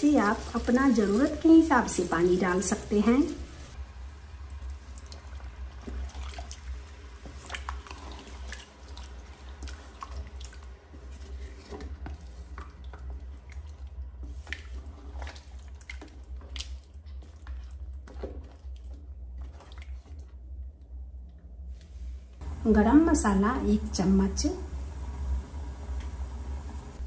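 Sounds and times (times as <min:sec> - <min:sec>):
curry sloshing and splashing: 0:00.0 - 0:20.6
steady low hum: 0:20.0 - 0:27.0.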